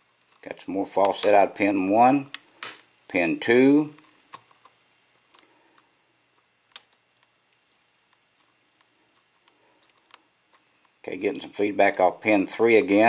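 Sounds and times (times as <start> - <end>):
lock pick metallic clicks: 6.7 - 7.3.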